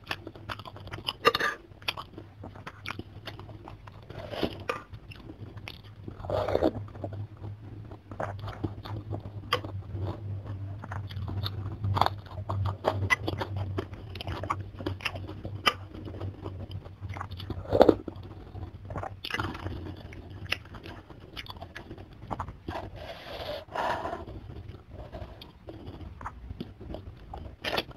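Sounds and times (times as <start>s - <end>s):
chewing and mouth smacks: 0.0s - 23.0s, 24.2s - 27.9s
slurping noodles and broth: 4.0s - 4.9s, 22.7s - 26.1s.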